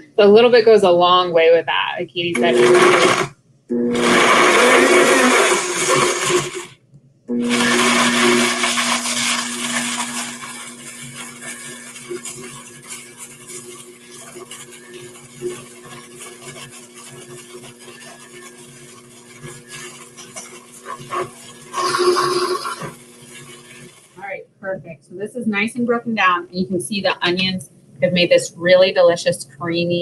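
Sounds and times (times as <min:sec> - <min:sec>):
blender running: 0:02.4 - 0:24.3.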